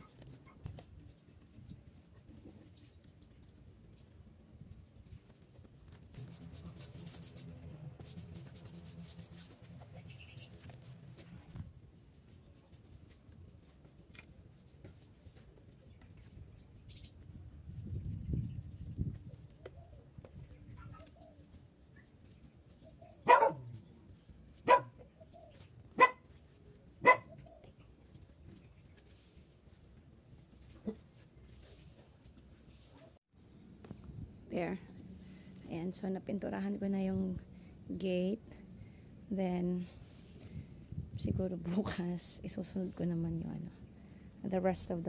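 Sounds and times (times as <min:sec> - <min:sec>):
paintbrush strokes on wood: 0:06.1 - 0:15.2
dog barking: 0:23.2 - 0:23.7, 0:24.6 - 0:25.0, 0:26.0 - 0:26.2, 0:27.0 - 0:27.3.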